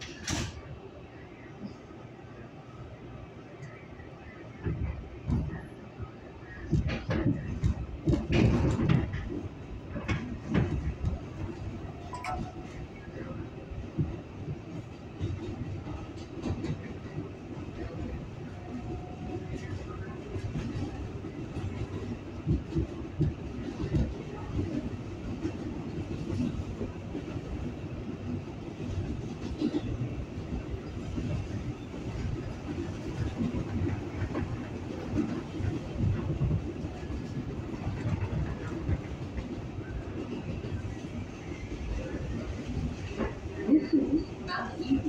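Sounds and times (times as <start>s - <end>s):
subway car rumble: 0.0s - 45.0s
clunks and rattles: 6.7s - 11.3s.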